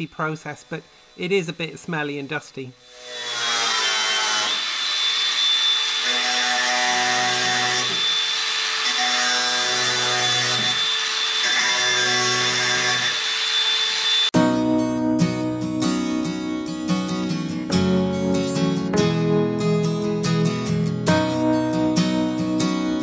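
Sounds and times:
angle grinder cutting steel: 0:00.0 - 0:14.4
guitar music: 0:14.4 - 0:23.0.

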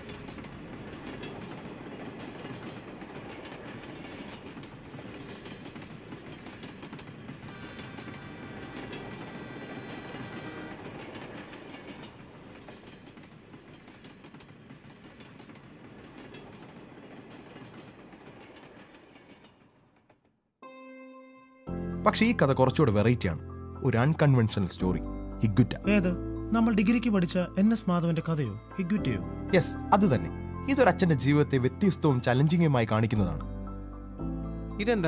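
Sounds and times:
train wheels clattering on rails: 0:00.0 - 0:20.3.

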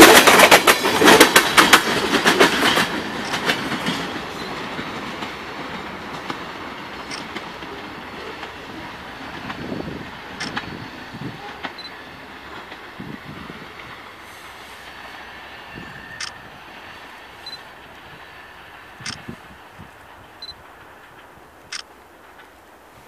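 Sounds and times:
wheels clicking over rail: 0:00.0 - 0:08.6
freight train wheel noise: 0:00.0 - 0:23.0.

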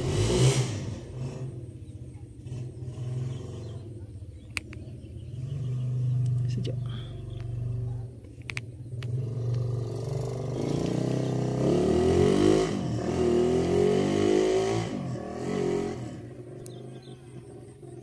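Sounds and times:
vehicle engine passing by: 0:00.0 - 0:08.2, 0:08.8 - 0:18.0.

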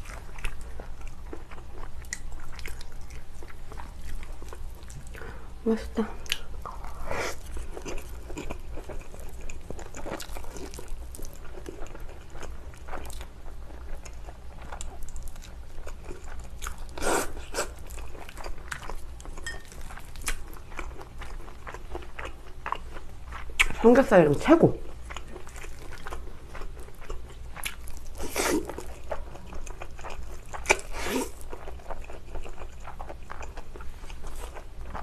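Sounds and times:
slurping and chewing noodles: 0:25.0 - 0:35.0.

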